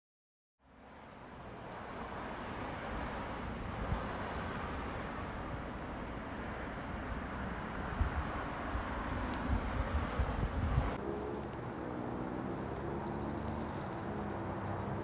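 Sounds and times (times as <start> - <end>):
distant traffic: 0.6 - 15.0
wind buffeting microphone: 7.1 - 12.0.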